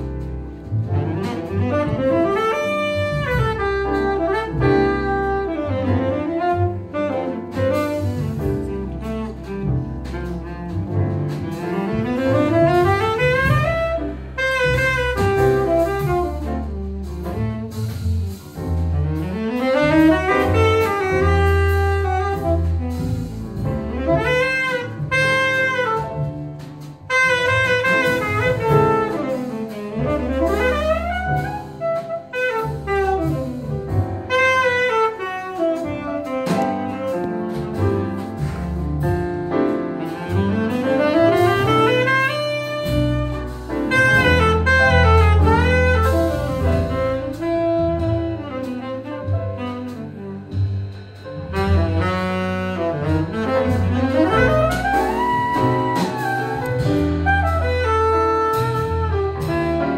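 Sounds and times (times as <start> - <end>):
double bass: 0.0 - 59.9
saxophone solo: 1.0 - 9.6, 11.4 - 18.2, 19.0 - 38.6, 40.0 - 50.6, 51.5 - 59.9.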